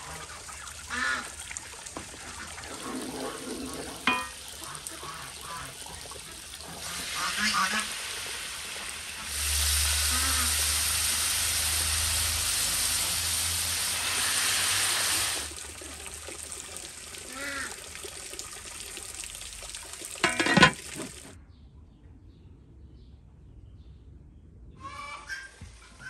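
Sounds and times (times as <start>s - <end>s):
meat sizzling in hot fat: 6.8s - 15.6s.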